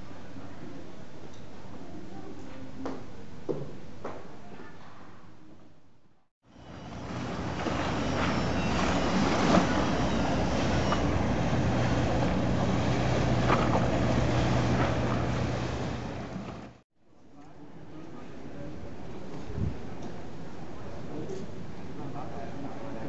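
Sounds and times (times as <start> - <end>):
low hum: 6.5 - 16.8
water splashing against stone steps: 7.1 - 16.8.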